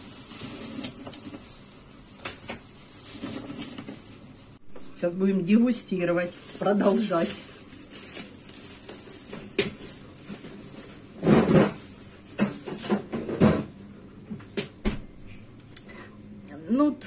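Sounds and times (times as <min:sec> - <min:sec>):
rustling clattering bursts: 0:00.0 - 0:04.6.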